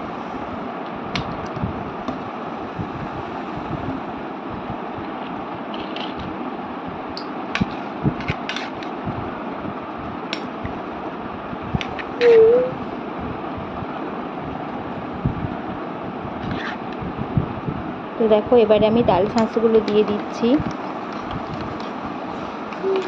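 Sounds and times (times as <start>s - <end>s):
room fan whirring: 0.0s - 23.0s.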